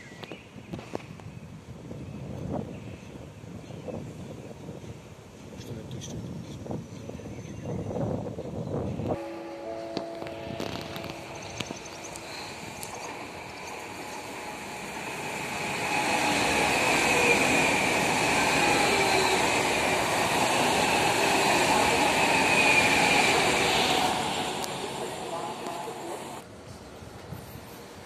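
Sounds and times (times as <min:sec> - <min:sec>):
train wheels rushing on rails: 0:07.8 - 0:28.0.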